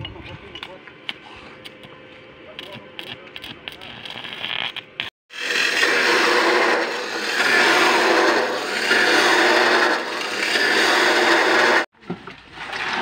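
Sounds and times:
chop saw grinding metal: 5.3 - 11.9.

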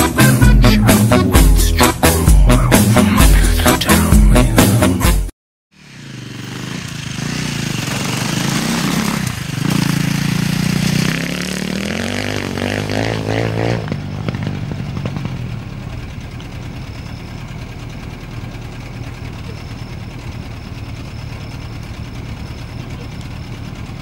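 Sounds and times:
motocross bike accelerating: 5.8 - 24.0.

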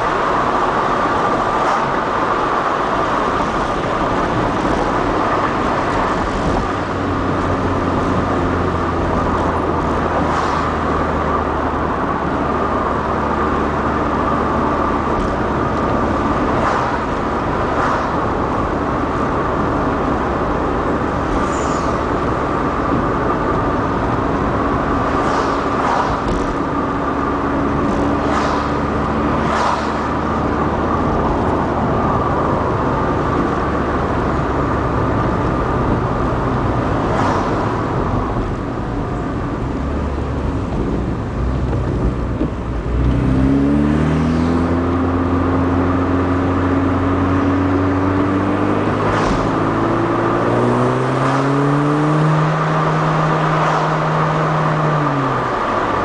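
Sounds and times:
car engine and road noise: 0.0 - 56.0
brief hissing swishes: 21.4 - 22.0, 28.3 - 28.8.

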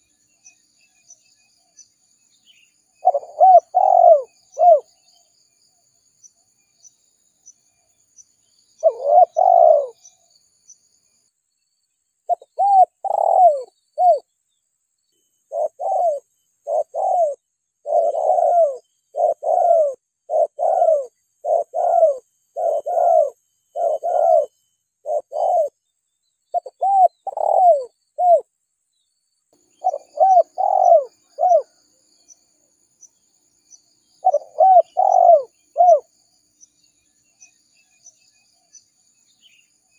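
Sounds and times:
dove cooing: 3.0 - 4.9, 8.8 - 10.1, 12.3 - 14.2, 15.5 - 25.8, 26.5 - 28.4, 29.8 - 31.8, 34.2 - 36.1.

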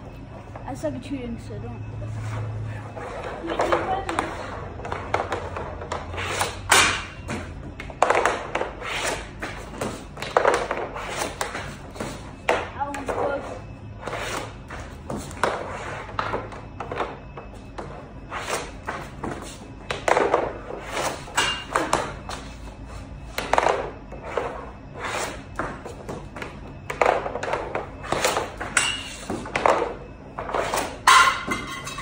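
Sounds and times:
pucks hitting net: 3.0 - 13.4, 18.3 - 22.4, 23.3 - 32.0
hockey stick striking puck: 3.2 - 13.3, 18.4 - 22.2, 23.3 - 32.0.

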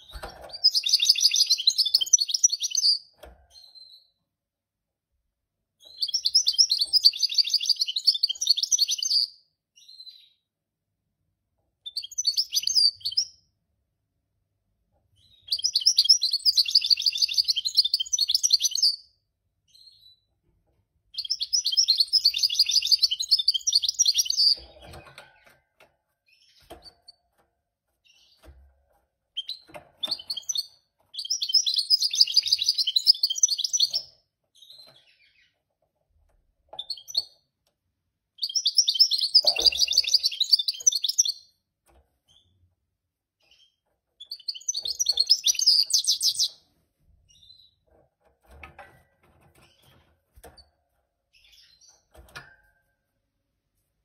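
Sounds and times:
finch singing twittering warble: 38.4 - 41.4.

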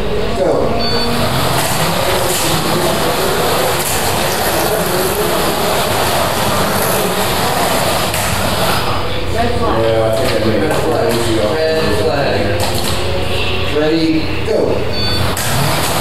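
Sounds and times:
slot cars whirring and rattling: 1.1 - 9.1, 15.2 - 16.0.

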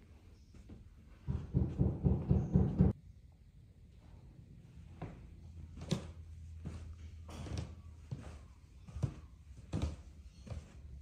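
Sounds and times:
footsteps on carpeted stairs: 4.9 - 11.0.

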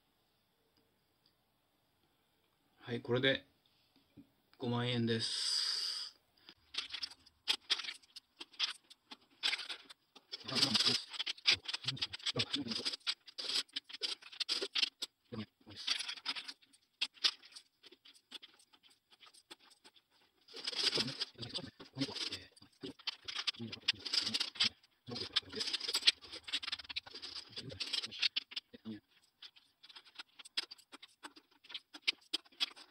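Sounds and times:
coins rattling in plastic bank: 6.6 - 32.9.

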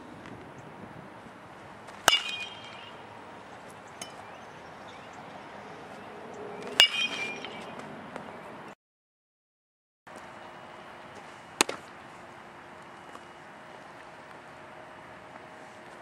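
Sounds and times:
metal bat hitting baseball: 2.0 - 3.0, 4.0 - 4.3, 6.6 - 7.8.

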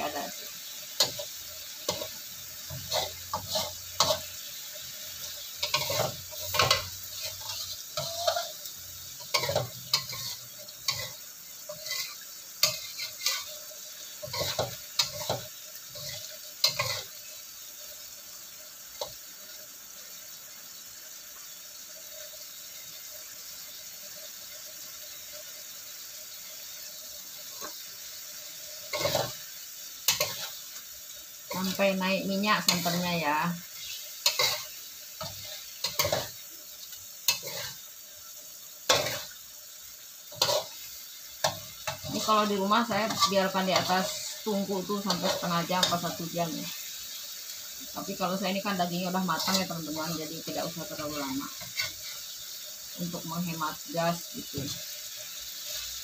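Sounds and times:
spatula scraping a wok: 0.0 - 17.4, 27.4 - 53.0
sauce sizzling: 0.0 - 56.0.

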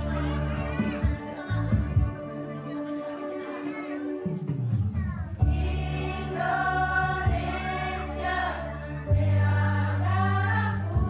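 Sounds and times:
women's choir singing: 5.4 - 11.0.

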